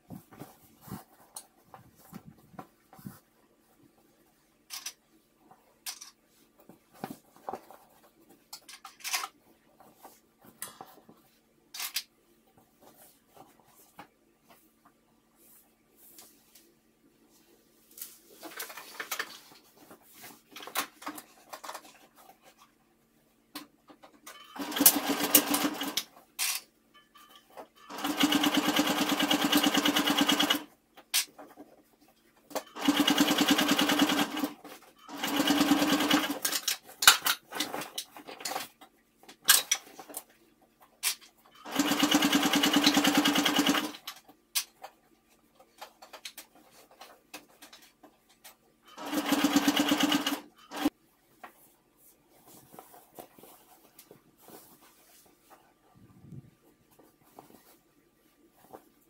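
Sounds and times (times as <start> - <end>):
sewing machine stitching: 24.3 - 26.1, 27.8 - 30.7, 32.5 - 36.6, 41.6 - 44.1, 48.9 - 50.9
fabric rustling: 51.1 - 59.0.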